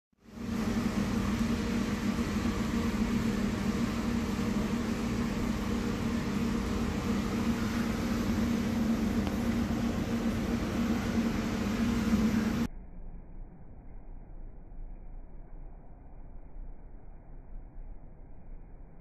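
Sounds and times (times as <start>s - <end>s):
constant hiss: 0.2s - 12.7s
low machine hum: 0.2s - 19.0s.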